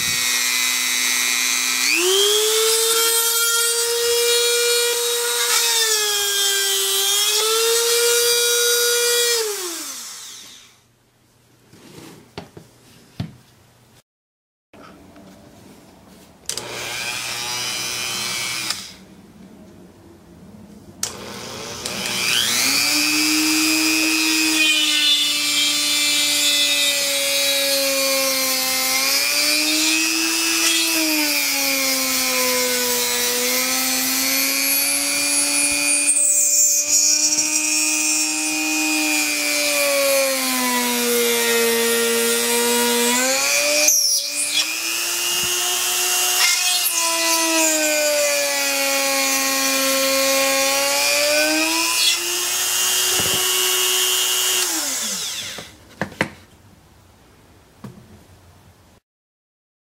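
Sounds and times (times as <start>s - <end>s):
rotary tool whining: 21.0s - 55.8s.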